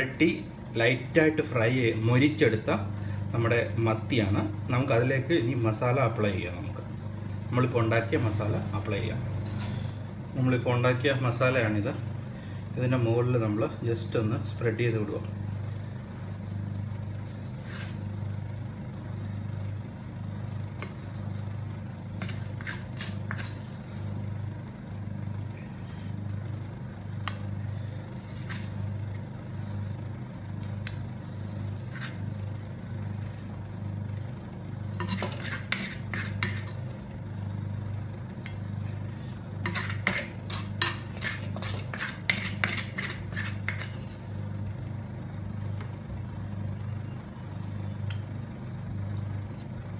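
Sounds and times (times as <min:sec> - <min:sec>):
steady low hum: 0:00.0 - 0:49.9
spoon scraping a steel plate: 0:22.2 - 0:23.7, 0:34.9 - 0:36.9, 0:39.6 - 0:44.1.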